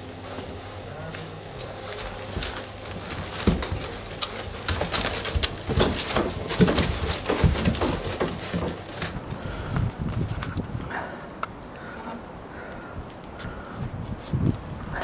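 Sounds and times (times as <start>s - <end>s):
puppies grunting and squeaking: 0.0s - 9.3s
suckling clicks and smacks: 2.5s - 9.2s.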